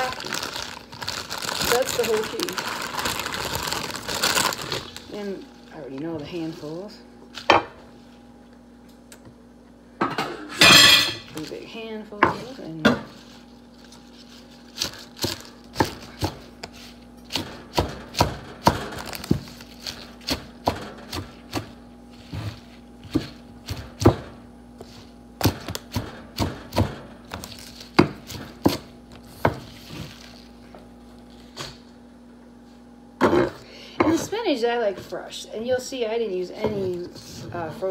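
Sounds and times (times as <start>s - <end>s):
knife chopping on wooden board: 14.8s - 24.3s, 25.4s - 29.7s.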